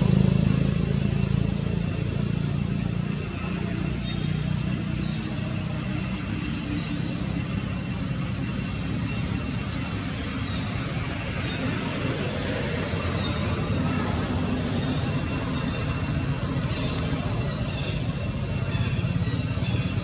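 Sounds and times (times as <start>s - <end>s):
low rumbling background noise: 0.0s - 20.0s.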